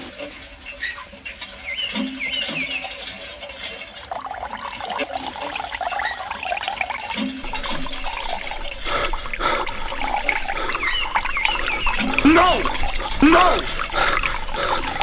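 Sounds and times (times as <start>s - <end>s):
water splashing and trickling: 0.0s - 15.0s.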